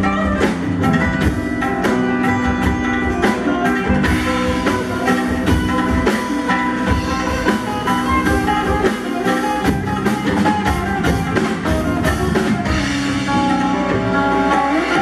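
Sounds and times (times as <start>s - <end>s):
drum kit playing: 0.0s - 15.0s
guitar notes: 0.0s - 15.0s.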